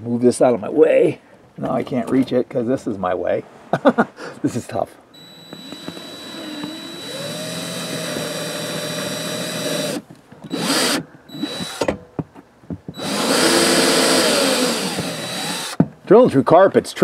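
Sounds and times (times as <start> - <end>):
power drill boring: 5.2 - 11.9, 13.0 - 15.8.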